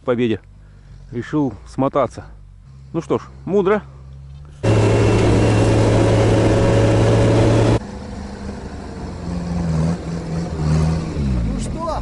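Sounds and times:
engine hum from outside: 0.0 - 12.0
vehicle engine running inside cabin: 4.6 - 10.5.

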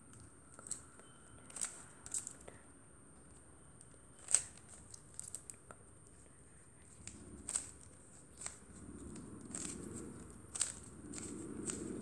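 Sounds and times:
puzzle cube plastic clicks: 0.2 - 2.5, 4.2 - 5.6, 6.9 - 12.0.

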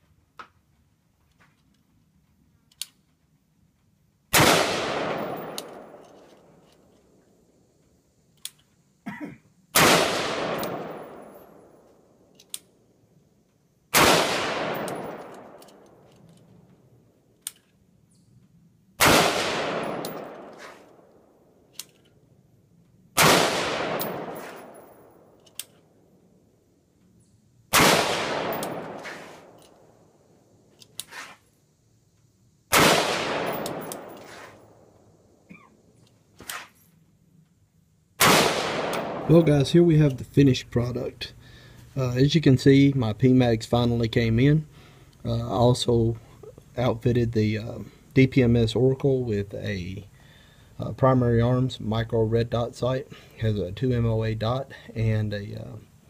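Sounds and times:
rifle shots: 4.3 - 6.3, 9.8 - 11.8, 13.9 - 15.9, 19.0 - 21.1, 23.2 - 25.4, 27.7 - 29.6, 32.7 - 34.8, 38.2 - 39.6.

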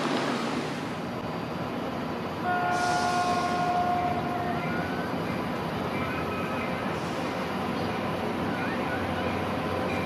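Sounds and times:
train rumble: 0.0 - 10.0
locomotive air horn chord: 2.4 - 4.6.

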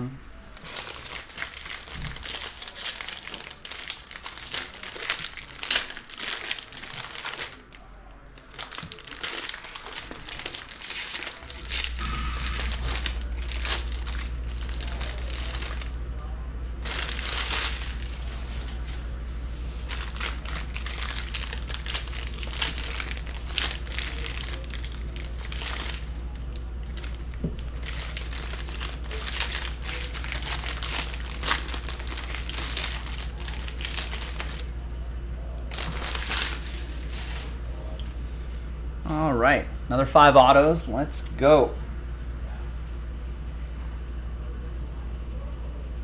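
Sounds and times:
foil wrappers tearing and crinkling: 0.4 - 16.0, 16.8 - 19.2, 19.8 - 34.7, 35.6 - 37.6.

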